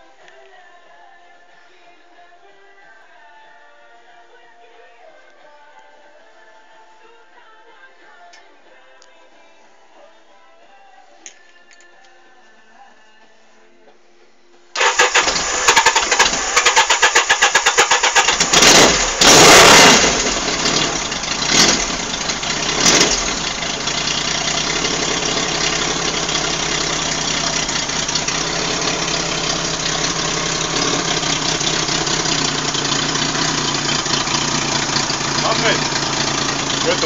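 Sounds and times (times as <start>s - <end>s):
motorcycle engine revving and idling: 14.8s - 37.0s.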